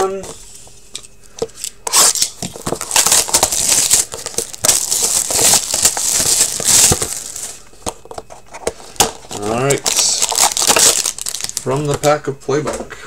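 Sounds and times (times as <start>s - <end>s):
plastic wrapping crinkling and tearing: 1.9s - 7.6s, 8.9s - 12.1s.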